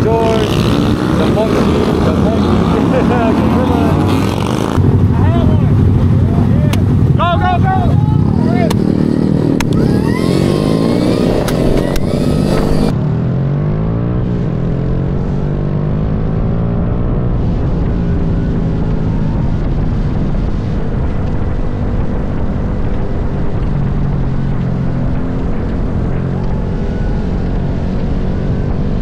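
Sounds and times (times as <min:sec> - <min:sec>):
motorcycle engines revving: 0:00.0 - 0:29.0
wind on microphone: 0:00.0 - 0:29.0.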